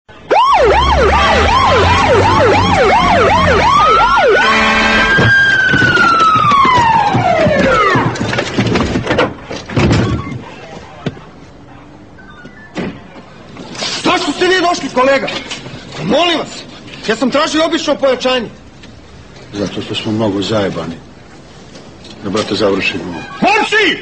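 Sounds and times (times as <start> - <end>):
police siren: 0.2 - 8.2.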